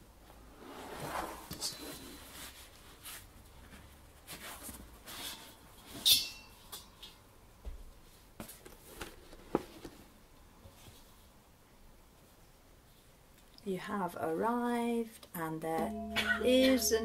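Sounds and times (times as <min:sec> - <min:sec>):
soft rustles: 0:00.4 - 0:06.0, 0:07.9 - 0:11.4.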